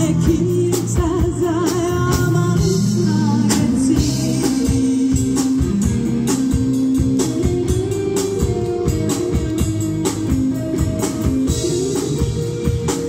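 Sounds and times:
woman singing with vibrato: 0.0 - 5.1
bass guitar: 0.0 - 13.0
drum kit steady beat: 0.0 - 13.0
electric guitars: 0.0 - 13.0.

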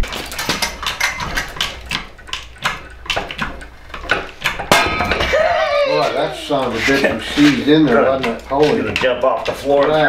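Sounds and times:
metal clicks and knocks: 0.0 - 5.3, 7.4 - 10.0.

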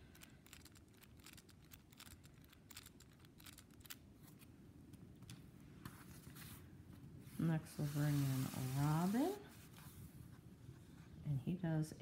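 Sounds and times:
plastic toy clicking: 0.0 - 4.0.

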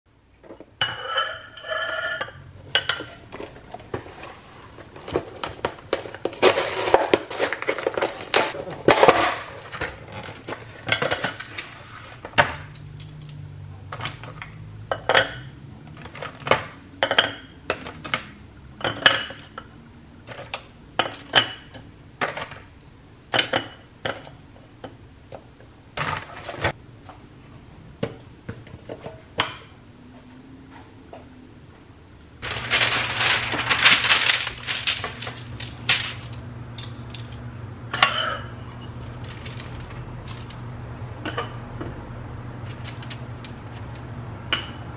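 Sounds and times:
crackly plastic clatter: 32.4 - 36.4.

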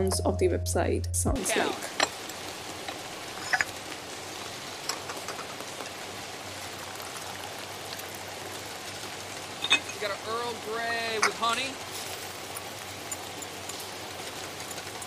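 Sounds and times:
rain hiss: 1.4 - 15.0
cups clinking: 1.9 - 2.2, 2.8 - 3.8, 9.6 - 10.1, 11.1 - 11.7.

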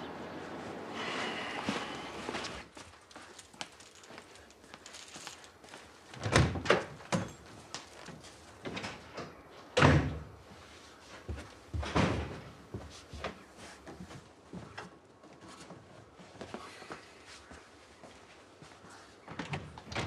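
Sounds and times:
footsteps on wooden stairs: 10.1 - 16.6
household thuds: 11.8 - 12.6.

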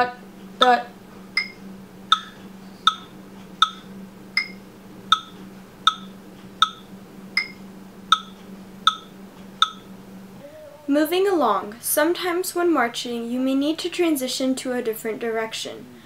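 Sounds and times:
metronome clicking: 1.4 - 9.9.

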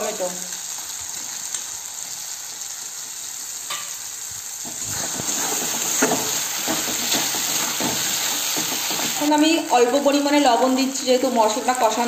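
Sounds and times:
tomatoes sizzling in hot oil: 0.0 - 12.0
spatula scraping a pan: 4.6 - 9.2.

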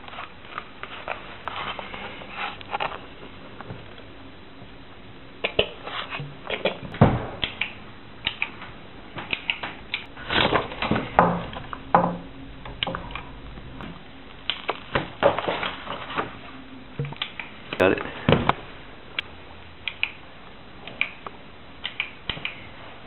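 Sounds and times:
short low hums: 10.1 - 14.6.

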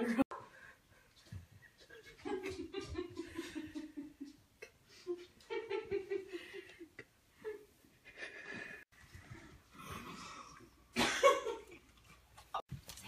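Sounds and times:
breaths: 0.4 - 1.2, 6.3 - 6.9
person chuckling breathily: 6.2 - 10.8.

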